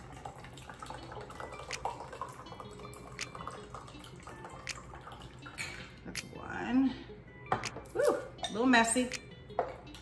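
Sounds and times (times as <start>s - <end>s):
liquid dripping and trickling: 0.0s - 6.3s.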